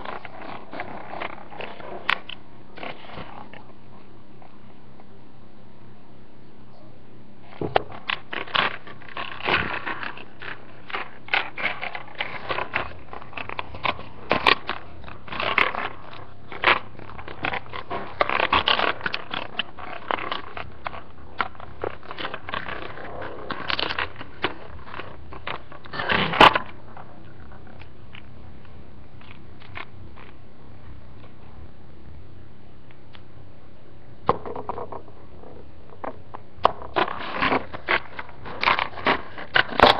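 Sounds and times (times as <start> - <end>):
plastic case crackling and scraping: 0.0 - 3.7, 7.5 - 28.3, 34.3 - 39.9.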